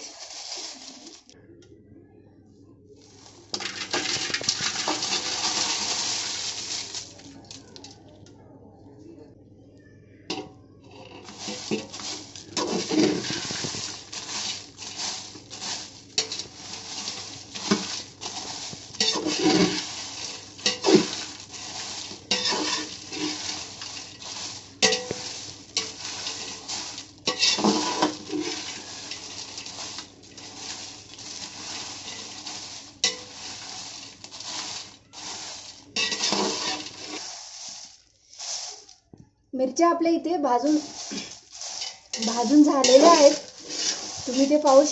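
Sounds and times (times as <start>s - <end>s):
spatula scraping chillies in pot: 0.0s - 1.4s, 3.0s - 8.0s, 10.3s - 39.0s, 40.3s - 44.9s.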